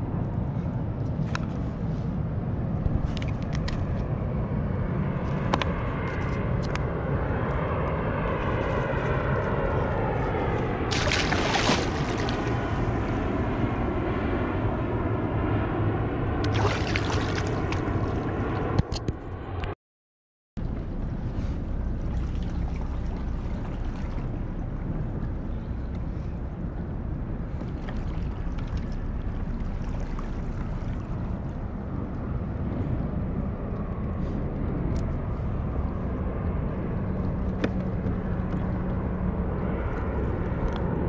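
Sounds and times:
steady low rumble: 0.0s - 19.8s, 20.6s - 41.0s
water sloshing and splashing: 8.4s - 13.6s, 16.4s - 18.7s, 20.7s - 31.8s.

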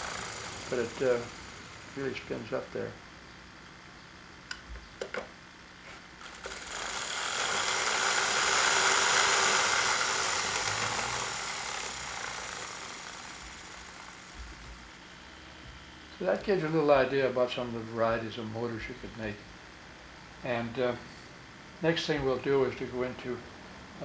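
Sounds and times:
small motor whirring buzz: 0.0s - 2.8s, 5.8s - 16.1s.

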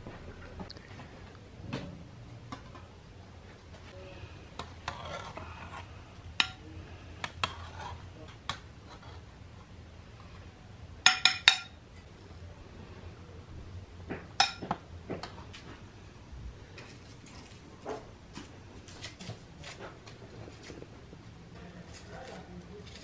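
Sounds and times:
dishes clinking: 6.4s - 6.6s, 11.0s - 11.8s, 14.1s - 15.3s.

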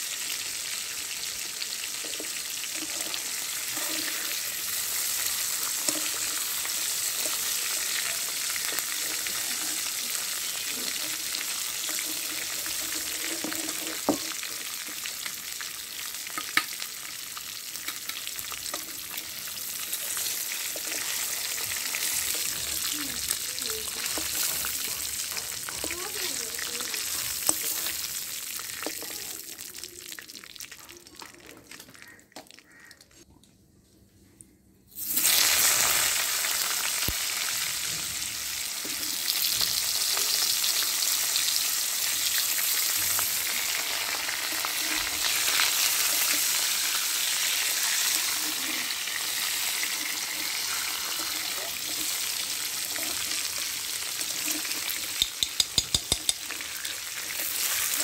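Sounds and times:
food sizzling in hot oil: 0.0s - 31.4s, 34.9s - 58.0s
spatula scraping metal pan: 2.1s - 7.6s, 11.0s - 14.4s.

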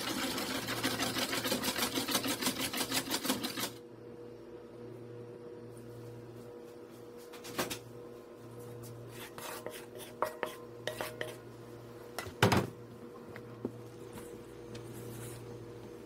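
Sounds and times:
steady low hum: 3.8s - 16.0s.

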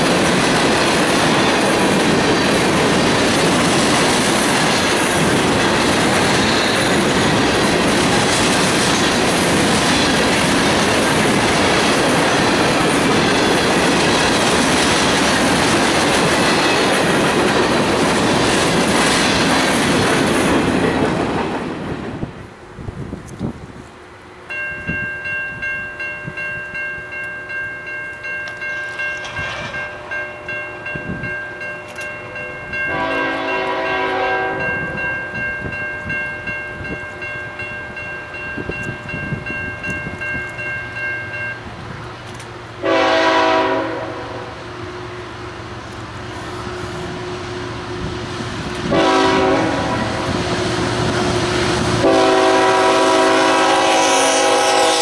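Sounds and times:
crossing warning bell ringing: 0.0s - 21.2s, 24.4s - 45.3s, 48.8s - 55.0s
locomotive horn blasts: 32.2s - 34.8s, 42.8s - 44.6s, 48.9s - 50.4s, 52.0s - 55.0s.

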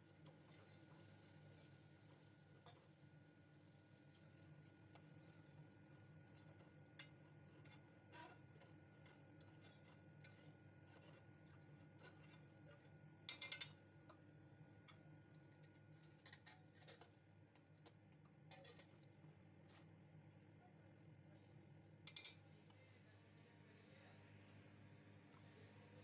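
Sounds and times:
metal spoon clinking on pot: 22.1s - 22.4s.

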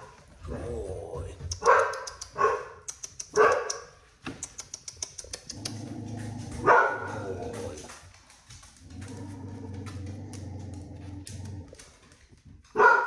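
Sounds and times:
dog barking: 1.6s - 3.9s, 6.6s - 7.7s, 12.7s - 13.0s.

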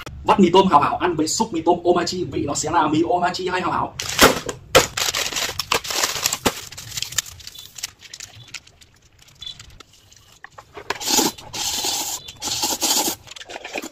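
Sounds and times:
plastic packets crinkling: 4.0s - 13.9s
noodles slurped and chewed: 8.2s - 13.9s.

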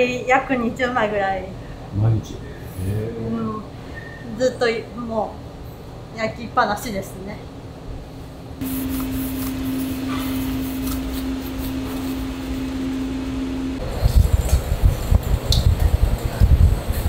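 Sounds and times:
machine hum: 8.4s - 17.0s.

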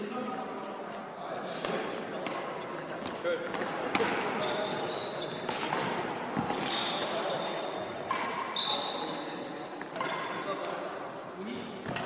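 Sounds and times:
racket hitting shuttlecock: 1.6s - 4.4s, 5.4s - 7.3s, 8.0s - 8.6s, 9.8s - 10.8s
sneakers squeaking on court: 4.2s - 5.5s, 6.4s - 9.2s.

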